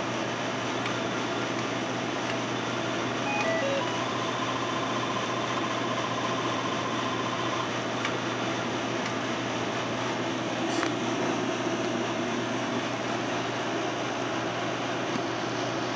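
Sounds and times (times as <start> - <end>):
slot machine beeps: 3.2 - 4.2.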